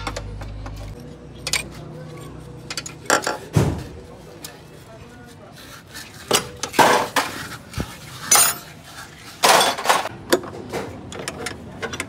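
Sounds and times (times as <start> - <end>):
metal tools clinking: 1.4 - 3.5, 8.2 - 8.7.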